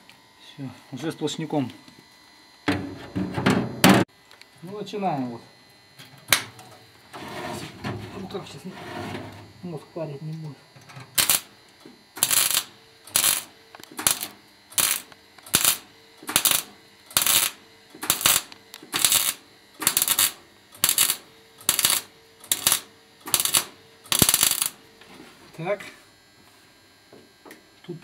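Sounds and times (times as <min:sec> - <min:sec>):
welder arc crackling: 0:11.1 - 0:24.8.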